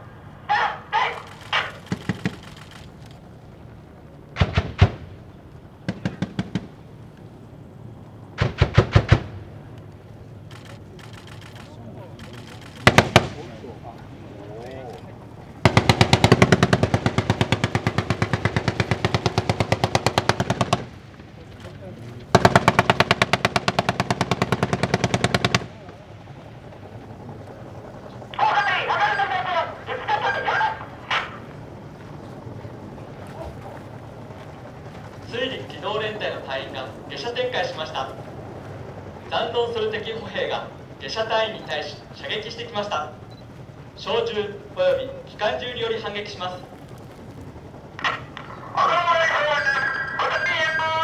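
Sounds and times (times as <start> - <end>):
automatic gunfire bursts: 0.6 - 3.0, 4.4 - 5.2, 5.8 - 6.7, 8.4 - 9.4, 10.5 - 13.5, 15.6 - 20.9, 22.3 - 25.7.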